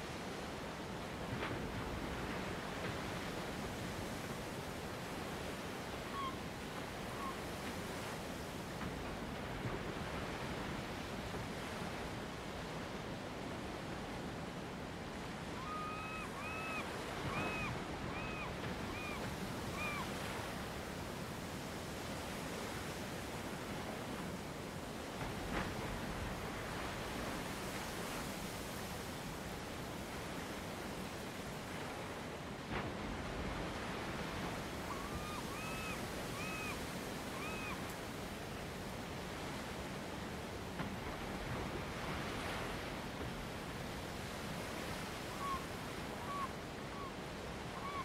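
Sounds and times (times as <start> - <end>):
waves rushing: 0.0 - 48.0
bird calls: 6.1 - 6.4, 15.6 - 20.2, 34.8 - 37.8, 46.2 - 48.0.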